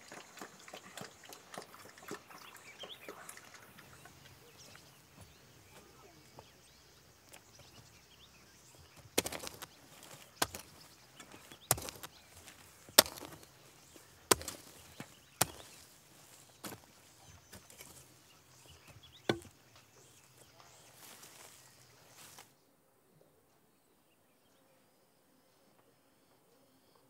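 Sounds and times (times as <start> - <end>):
hoe striking and scraping soil: 7.2 - 22.5.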